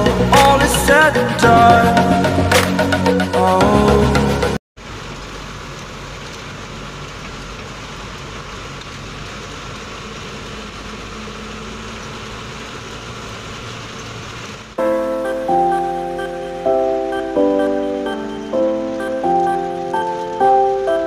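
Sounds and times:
tyre and road noise: 0:04.8 - 0:21.0.

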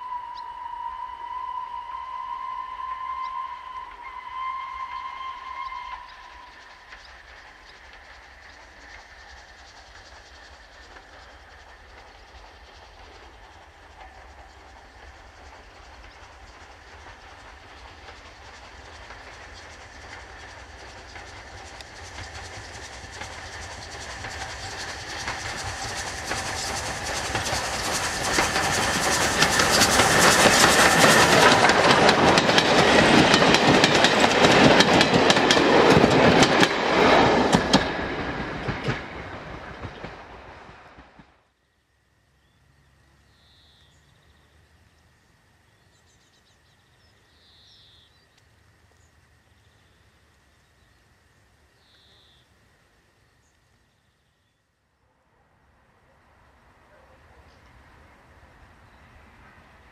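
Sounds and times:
steam locomotive passing: 0:00.0 - 0:59.9
wheels clattering over rail joints: 0:16.8 - 0:41.2.

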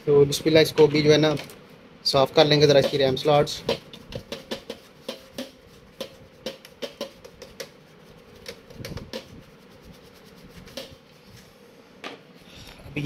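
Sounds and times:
brush scrubbing circuit board: 0:02.4 - 0:11.3.

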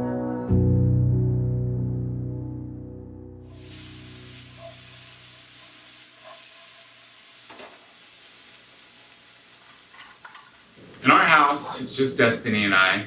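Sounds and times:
food sizzling in a frying pan: 0:03.4 - 0:13.0.

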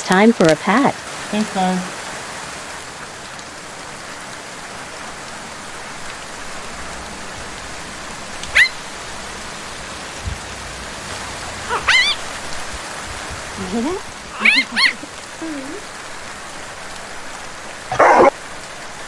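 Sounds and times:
puppy yipping: 0:08.4 - 0:08.8, 0:11.7 - 0:12.2, 0:14.4 - 0:15.1, 0:17.9 - 0:18.3.

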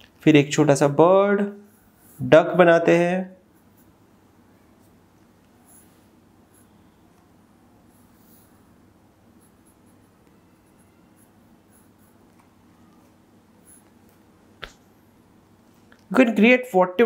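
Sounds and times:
low steady hum: 0:00.0 - 0:16.5
pencil scratching on paper: 0:04.7 - 0:07.1, 0:07.8 - 0:14.3.

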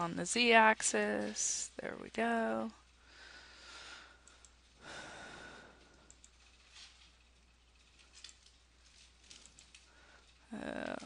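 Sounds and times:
low steady hum: 0:00.0 - 0:11.0
soft breaths: 0:02.7 - 0:07.4, 0:08.8 - 0:11.0
faint clicks: 0:04.1 - 0:04.7, 0:05.7 - 0:06.8.

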